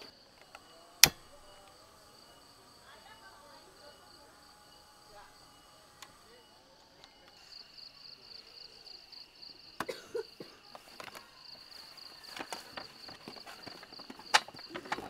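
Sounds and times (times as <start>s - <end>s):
high insect trill: 0.0s - 15.0s
plastic containers knocking: 12.3s - 15.0s.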